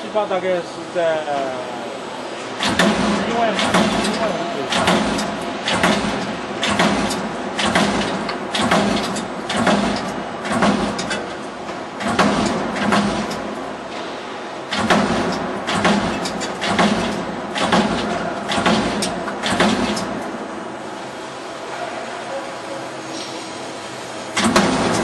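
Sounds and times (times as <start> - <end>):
machine hum: 0.0 - 25.0
punch press strokes: 2.6 - 11.4, 12.0 - 13.5, 14.7 - 20.2, 24.4 - 25.0.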